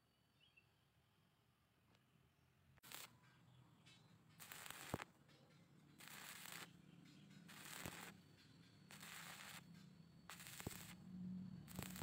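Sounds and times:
welding arc crackling: 2.8 - 3.1, 4.4 - 5.1, 6.0 - 6.8, 7.5 - 8.2, 8.9 - 9.7, 10.3 - 11.0, 11.6 - 12.0.

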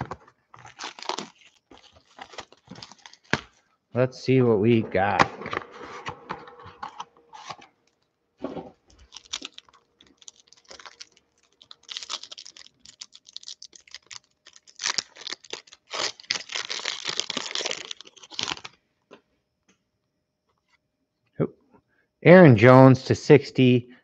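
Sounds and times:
foil card pack crinkling and tearing: 0.0 - 3.7, 8.9 - 18.8.

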